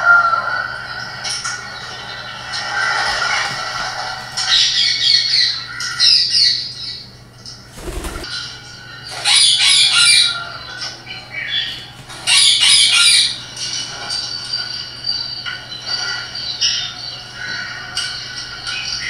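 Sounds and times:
parrot squawking: 0:09.2 - 0:10.7, 0:11.5 - 0:13.4.

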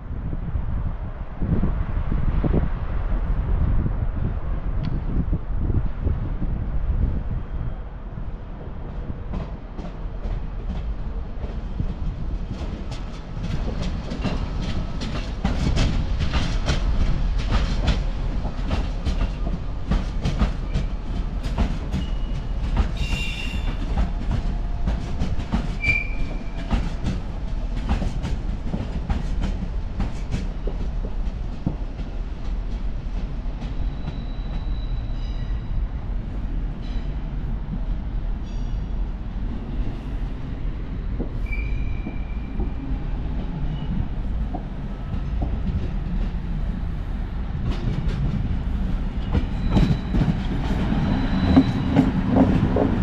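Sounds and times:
train rumbling past: 0:00.0 - 0:53.0
high wheel squeals: 0:25.8 - 0:26.5, 0:33.8 - 0:35.8, 0:41.4 - 0:42.6, 0:51.0 - 0:52.1.

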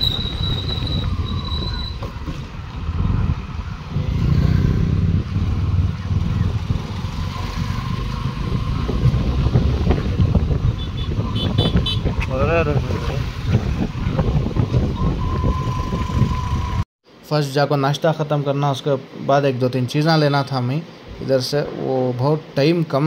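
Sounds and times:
road and wind noise: 0:00.0 - 0:23.0.

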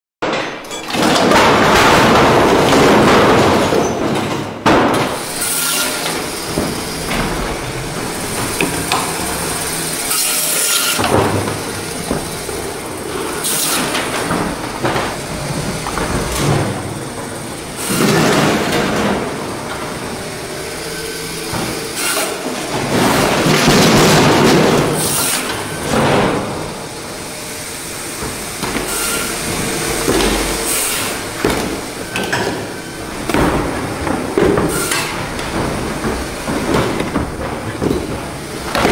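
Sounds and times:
steady machine hum: 0:01.2 - 0:38.9
band saw cutting frozen fish: 0:05.2 - 0:18.5, 0:20.2 - 0:23.4, 0:27.4 - 0:33.4.

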